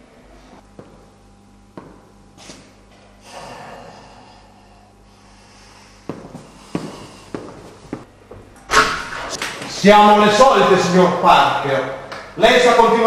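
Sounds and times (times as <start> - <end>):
low room hum: 0.0 - 13.0
man snorting through nose: 2.4 - 4.6
footsteps on tiled floor: 6.0 - 8.5.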